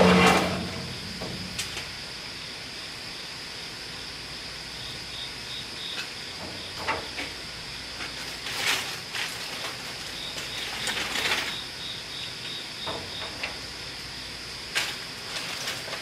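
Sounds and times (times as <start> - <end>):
ribs scraping on metal grate: 0.0 - 1.7, 14.8 - 16.0.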